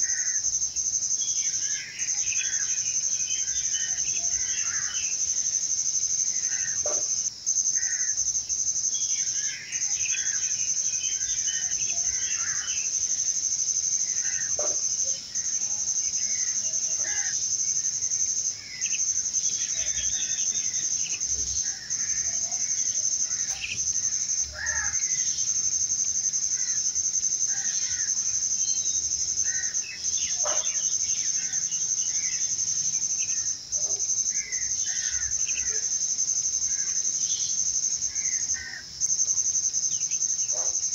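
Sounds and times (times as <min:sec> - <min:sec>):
insects trilling: 0:00.0 - 0:40.9
birds chirping and calling: 0:09.0 - 0:13.0, 0:18.7 - 0:25.5, 0:27.5 - 0:32.6.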